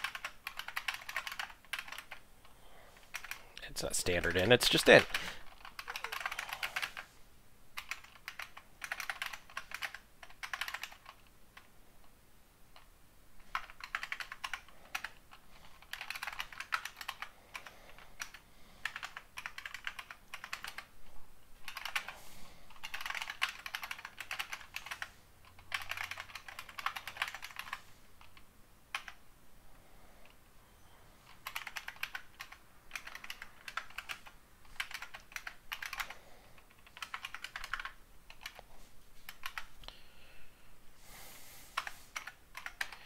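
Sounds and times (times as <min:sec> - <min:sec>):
typing on computer keyboard: 0:00.0 - 0:02.2, 0:03.1 - 0:03.4, 0:04.9 - 0:07.0, 0:07.8 - 0:11.7, 0:12.7 - 0:20.9, 0:21.6 - 0:29.2, 0:31.2 - 0:38.7, 0:39.3 - 0:39.7, 0:41.8 - 0:43.0.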